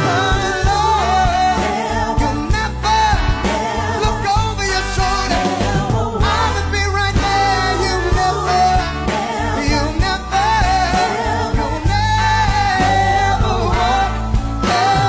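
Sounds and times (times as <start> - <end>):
band accompaniment: 0.0 - 15.0
low bass notes: 0.0 - 15.0.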